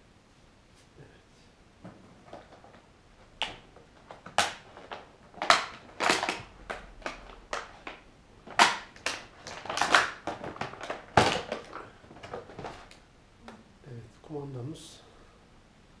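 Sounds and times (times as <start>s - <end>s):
packaging rummaged through by hand: 1.9s - 13.0s.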